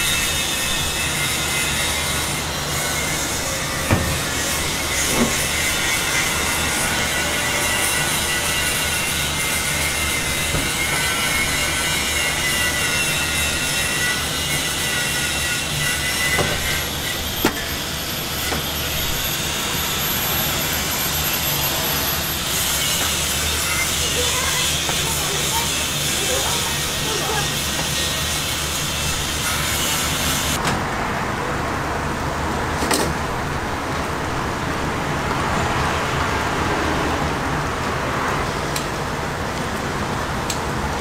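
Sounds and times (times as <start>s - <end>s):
griddle hissing: 0.0s - 30.6s.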